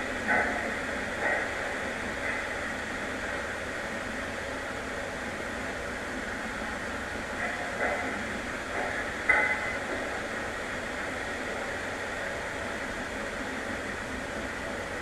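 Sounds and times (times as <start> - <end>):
steady hiss and low hum: 0.0 - 15.0.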